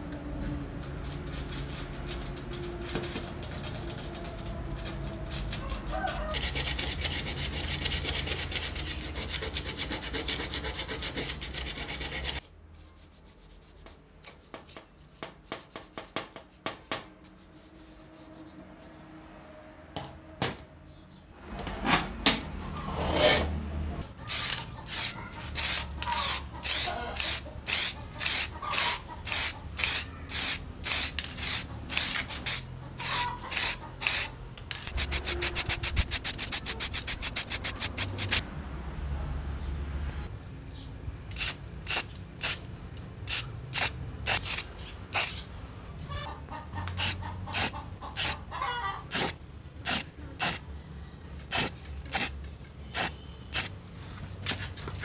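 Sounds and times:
brush scrubbing circuit board: 6.4 - 12.4, 34.9 - 38.4
handling small parts: 24.3 - 38.4
short brush strokes: 34.9 - 38.4.

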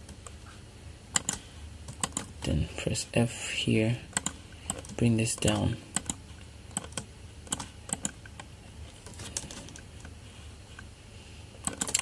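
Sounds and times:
keyboard keys clicking: 1.2 - 2.3, 11.6 - 12.0.

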